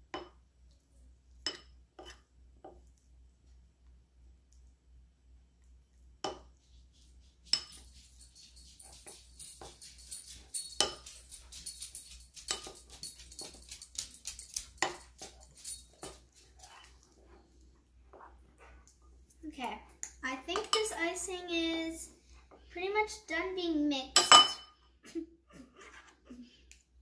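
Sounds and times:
spoon clinking in bowl: 7.6s - 16.2s, 24.2s - 24.7s.

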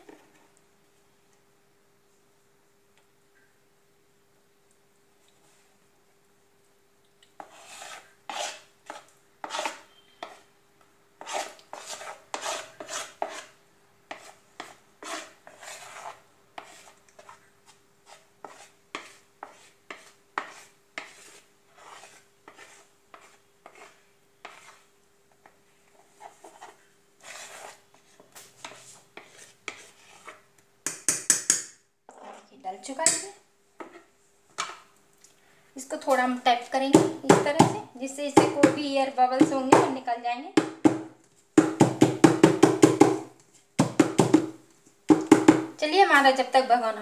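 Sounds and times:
spoon scraping batter from bowl: 7.2s - 10.5s, 11.2s - 30.5s.

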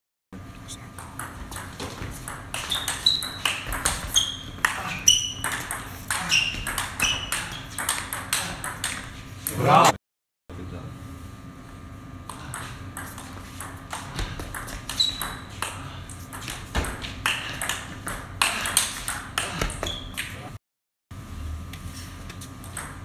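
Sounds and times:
short high squeaks: 2.6s - 5.5s, 14.9s - 15.5s.

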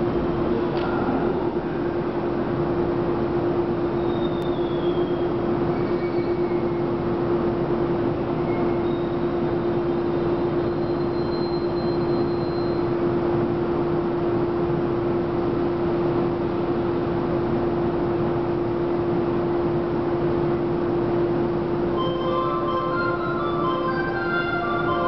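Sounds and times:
electric train humming: 20.6s - 25.0s.

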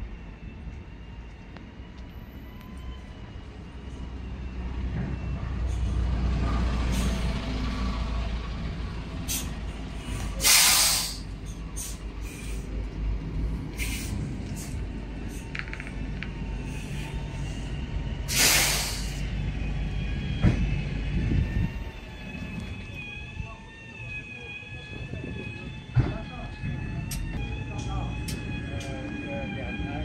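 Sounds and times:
diesel engine rumbling: 1.4s - 30.0s
air hissing: 10.4s - 12.6s, 18.3s - 19.2s.

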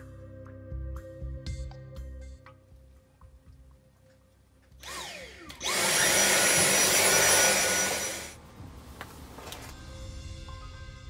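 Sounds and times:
vacuum cleaner running: 4.8s - 8.4s.

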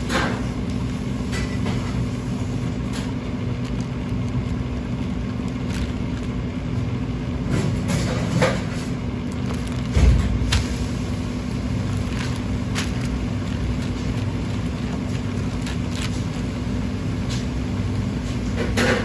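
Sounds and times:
kitchen equipment humming: 0.0s - 19.0s.

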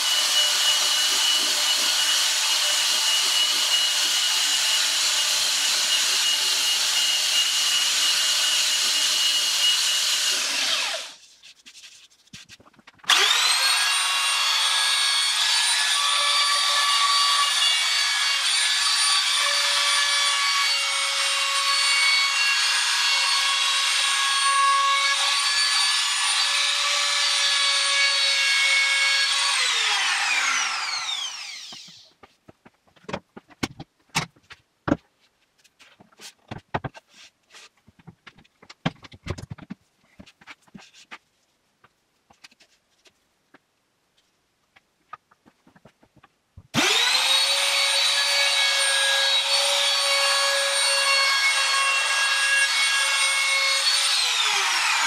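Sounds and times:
trim router whining: 0.0s - 11.2s, 13.1s - 32.0s, 46.7s - 55.0s
tool and wood knocks and clicks: 31.5s - 35.2s, 35.8s - 37.1s, 37.8s - 41.1s.

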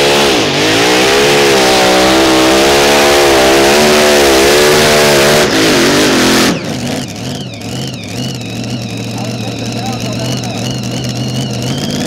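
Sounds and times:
tractor engine running under load: 5.0s - 12.0s
engine low idle: 6.3s - 12.0s.

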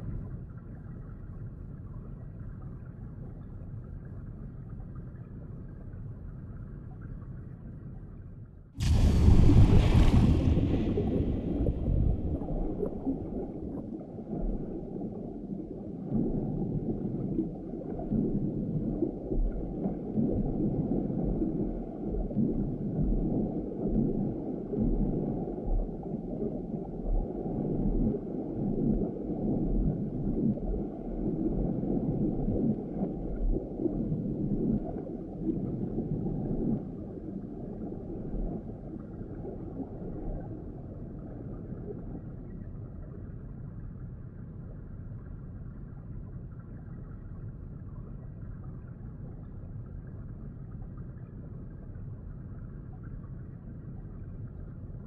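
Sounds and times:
splash into water: 8.8s - 13.1s
underwater churning and gurgling: 8.8s - 55.0s.

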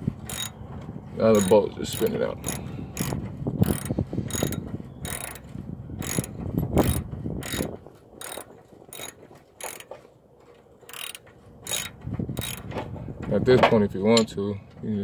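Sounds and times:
hand ratchet clicking: 0.3s - 0.6s, 1.3s - 10.0s, 10.8s - 12.7s.

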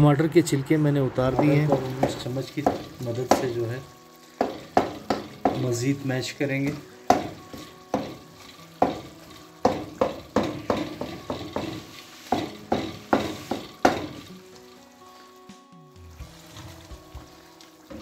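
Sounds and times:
oil frying sizzle: 1.2s - 18.0s
wooden spoon knocking in pan: 1.3s - 14.3s, 16.3s - 18.0s.

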